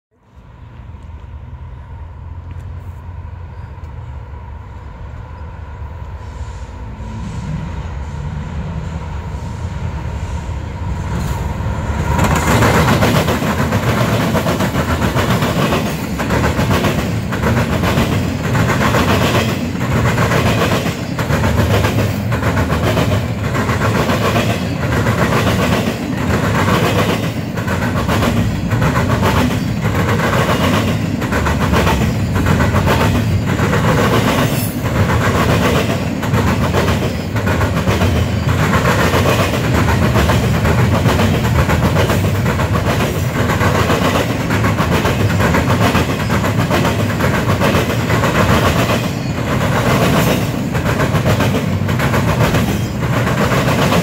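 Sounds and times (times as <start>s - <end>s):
train wheels clattering on rail joints: 11.1s - 54.0s.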